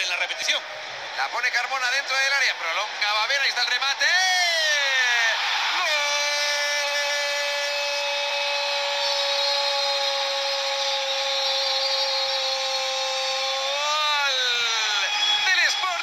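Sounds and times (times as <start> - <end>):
stadium crowd noise: 0.0 - 16.0
commentator shouting: 1.6 - 9.0.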